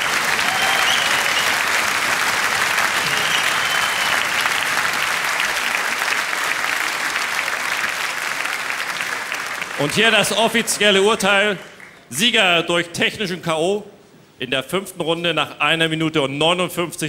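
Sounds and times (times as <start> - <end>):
crowd applauding: 0.0 - 12.1.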